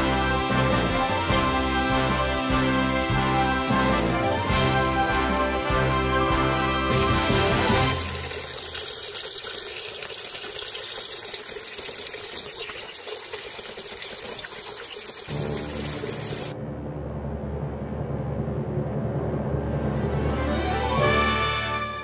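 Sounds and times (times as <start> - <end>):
background music: 0.0 - 8.6, 15.3 - 22.0
running water: 6.9 - 16.6.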